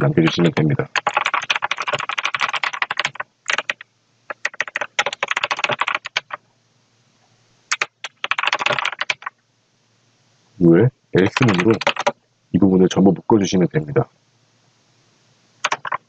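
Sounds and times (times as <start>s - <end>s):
computer keyboard typing: 0.3s - 6.4s, 7.7s - 9.3s, 11.2s - 12.2s, 15.6s - 16.0s.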